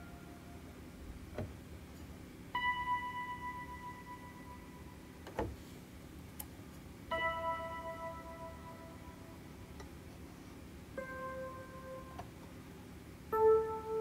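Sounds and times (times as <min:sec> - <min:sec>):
ringing bell-like notes: 0:07.1 - 0:09.4.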